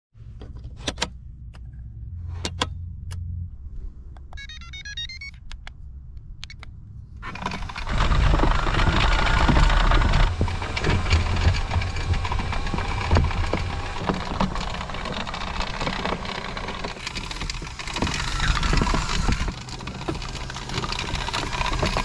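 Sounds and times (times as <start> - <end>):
motor and tracks running: 0.4 - 22.0
electronic beeps: 4.3 - 5.6.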